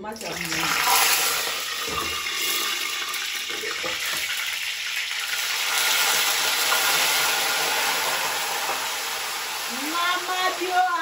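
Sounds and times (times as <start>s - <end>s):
oil sizzling in a wok: 0.1s - 11.0s.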